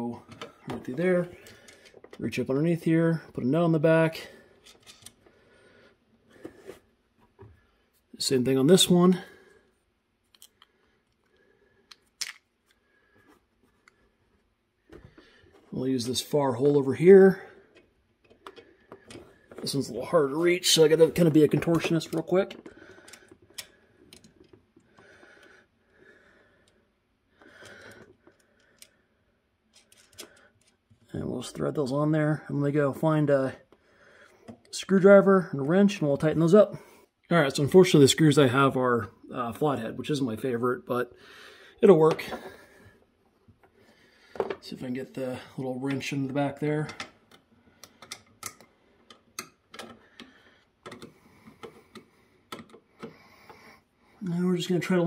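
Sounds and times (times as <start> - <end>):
man breathing quietly: 1.3 - 2.2, 4.2 - 8.1, 9.2 - 15.7, 17.3 - 19.6, 22.6 - 30.8, 33.7 - 34.7, 41.1 - 44.6, 46.9 - 54.2
faint clicks of screw and nut: 4.6 - 5.3, 17.7 - 19.7, 21.6 - 25.6, 27.4 - 29.1, 29.7 - 31.1, 46.8 - 53.7.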